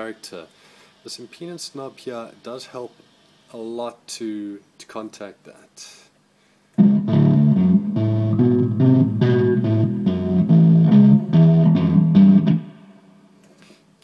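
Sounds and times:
distorted fuzz bass guitar notes: 0:06.8 - 0:13.0.

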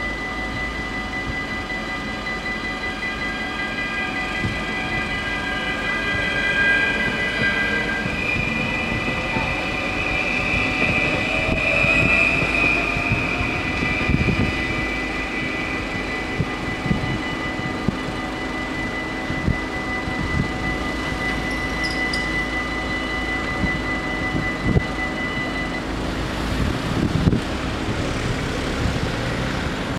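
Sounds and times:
electric train motor whine: 0:00.0 - 0:29.9
level crossing warning bells: 0:00.0 - 0:29.9.

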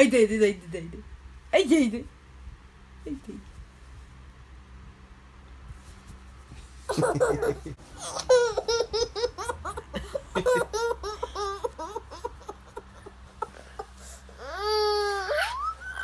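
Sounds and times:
baby laughing: 0:06.9 - 0:16.0.

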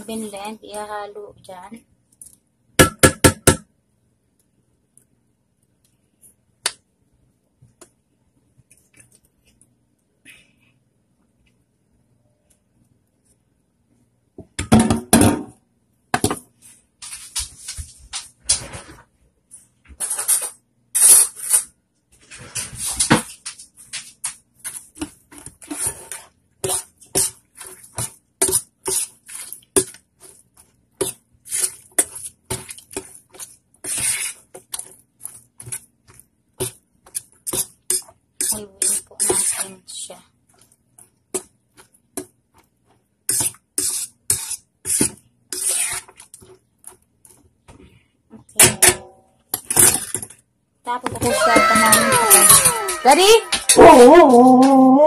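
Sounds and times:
spoon stirring in metal bowl: 0:22.4 - 0:39.8, 0:40.4 - 0:47.8.

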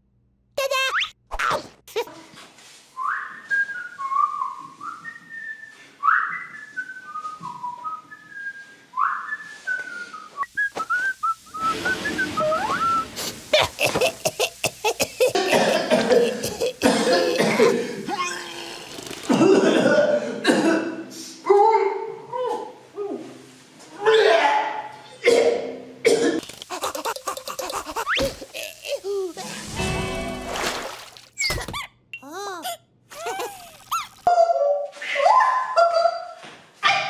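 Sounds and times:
person whistling a tune: 0:03.0 - 0:13.1.

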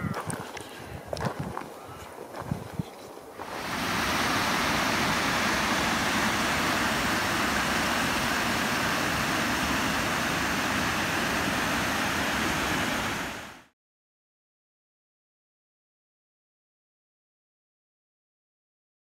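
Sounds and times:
waterfall rushing over rocks: 0:03.4 - 0:13.7.

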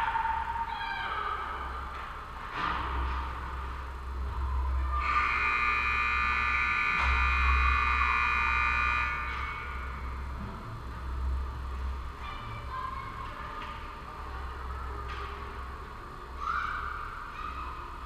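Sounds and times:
scoreboard buzzer: 0:05.0 - 0:10.1.

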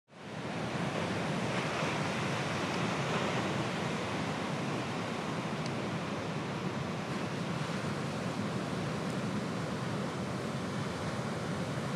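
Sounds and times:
ocean waves breaking on rocks: 0:00.2 - 0:11.9.

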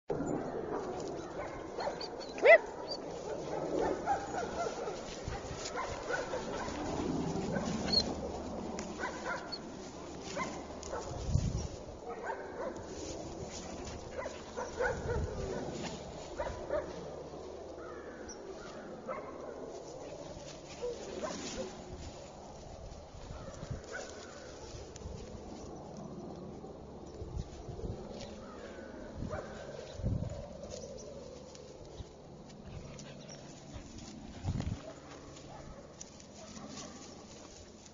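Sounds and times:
rustling through grass: 0:00.4 - 0:37.9
puppy barking: 0:01.2 - 0:06.9, 0:09.0 - 0:09.7, 0:12.1 - 0:12.8, 0:14.2 - 0:15.7, 0:19.0 - 0:19.6.

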